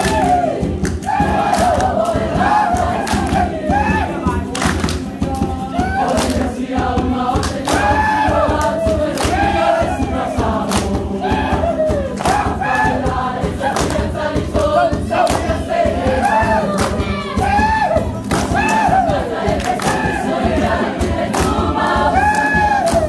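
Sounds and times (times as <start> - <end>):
crowd shouts: 0.0 - 4.6, 5.6 - 6.5, 7.7 - 13.9, 14.7 - 20.5, 21.9 - 23.0
drum strokes: 0.0 - 23.0
group singing: 0.0 - 23.0.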